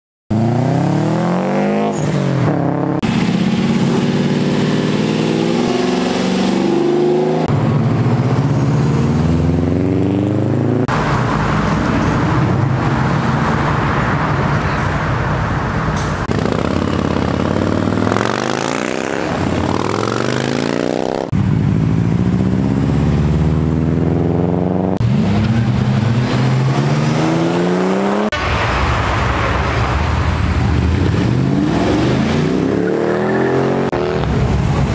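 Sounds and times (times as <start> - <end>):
cars accelerating hard: 0.3 - 14.8, 16.2 - 34.9.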